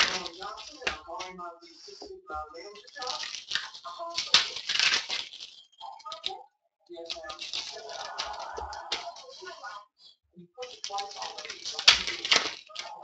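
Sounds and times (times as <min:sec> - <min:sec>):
foil wrapper crinkling: 0:00.0 - 0:01.4, 0:02.6 - 0:06.4, 0:07.0 - 0:09.6, 0:10.6 - 0:13.0.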